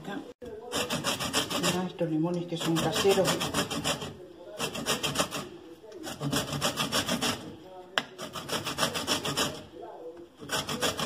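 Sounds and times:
lemon rind rasping on grater: 0:00.7 - 0:01.9, 0:02.5 - 0:07.4, 0:08.2 - 0:09.7, 0:10.4 - 0:11.0.

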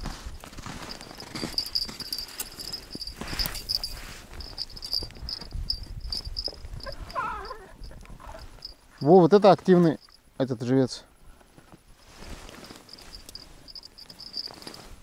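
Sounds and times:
snow crunching: 0:00.0 - 0:05.0, 0:12.0 - 0:15.0
high thin chirping tone: 0:00.9 - 0:10.3, 0:12.5 - 0:15.0.

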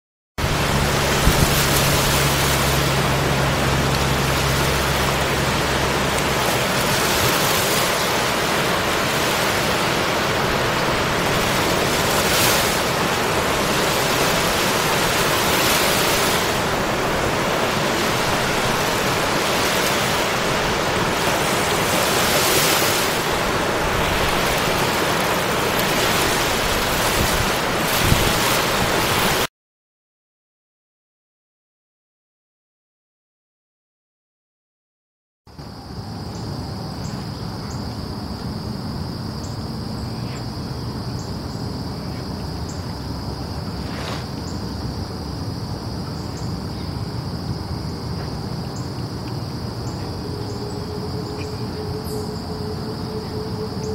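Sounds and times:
low steady hum: 0:00.4 - 0:27.0, 0:44.5 - 0:53.9
ocean surf: 0:00.4 - 0:29.5, 0:41.3 - 0:53.9.

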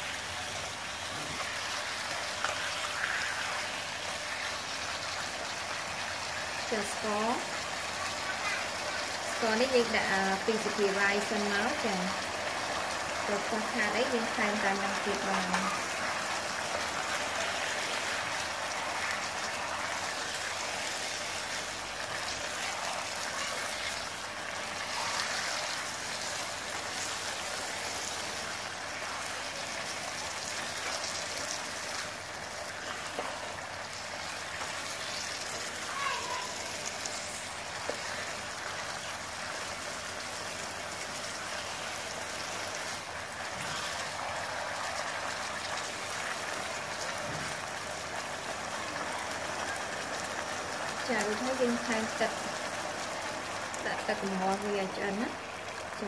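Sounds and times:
pork sizzling in a wok: 0:00.0 - 0:56.0.

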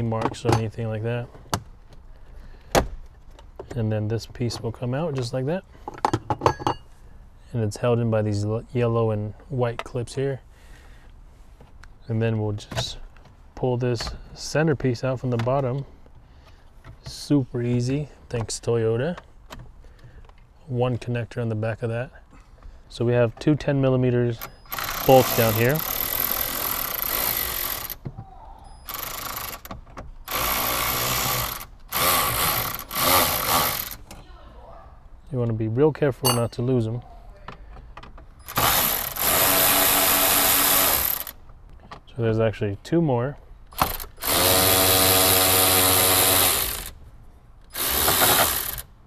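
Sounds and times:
ratchet clicking: 0:24.5 - 0:28.0, 0:28.9 - 0:34.0, 0:38.5 - 0:41.4, 0:47.7 - 0:48.9
cordless drill motor running: 0:24.7 - 0:28.0, 0:30.3 - 0:34.0, 0:38.5 - 0:41.4, 0:43.8 - 0:47.0, 0:47.7 - 0:48.9.

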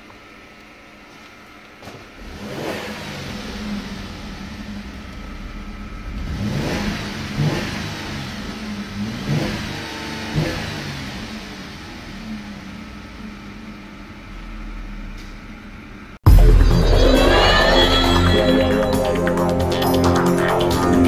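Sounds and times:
car engine starting and idling: 0:02.0 - 0:21.0
engine revving: 0:02.2 - 0:15.3.

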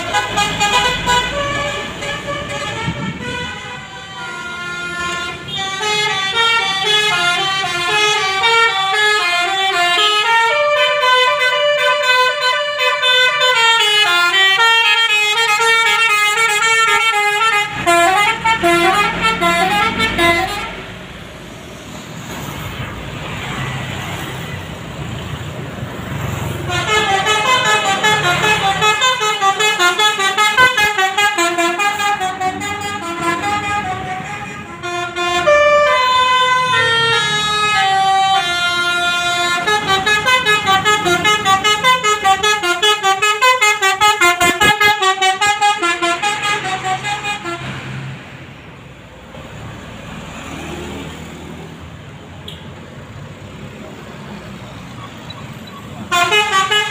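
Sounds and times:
bus horn playing melody: 0:00.0 - 0:21.0, 0:26.4 - 0:47.9, 0:56.0 - 0:56.9
bus engine rumble: 0:00.0 - 0:56.9
road noise: 0:00.0 - 0:56.9.

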